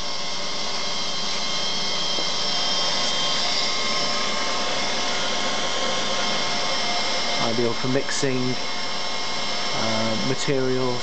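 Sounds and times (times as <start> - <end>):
mixer whirring with high whine: 0.0 - 11.0.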